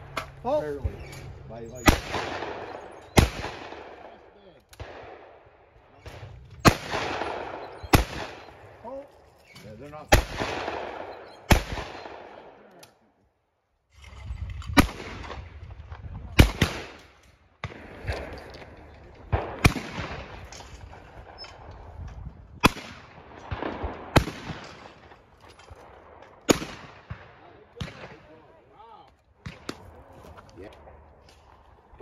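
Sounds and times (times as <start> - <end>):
shotgun blasts: 1.7 - 5.4, 6.0 - 8.8, 10.0 - 12.7, 14.8 - 18.2, 19.3 - 21.4, 22.6 - 25.2, 25.9 - 28.4.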